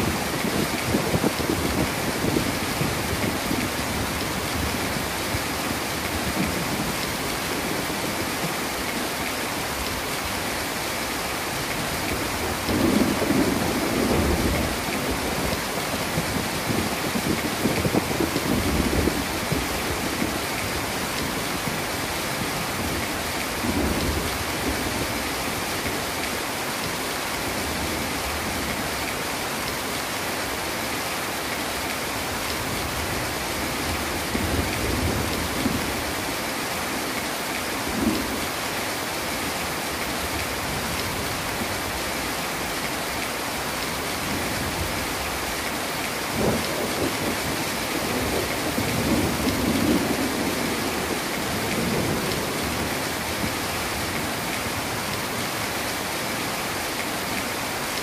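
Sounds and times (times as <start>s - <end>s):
heavy rain: 0.0s - 58.0s.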